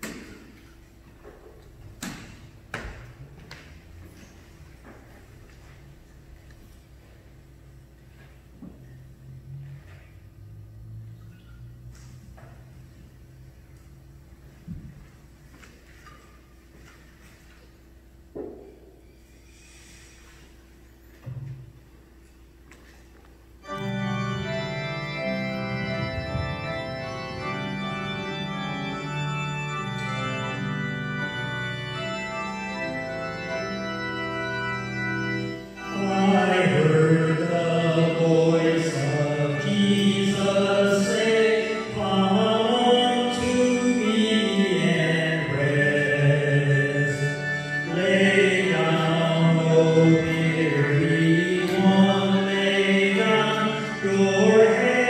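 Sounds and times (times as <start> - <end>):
church organ chords: 23.4 - 55.0
man singing a hymn: 35.8 - 55.0.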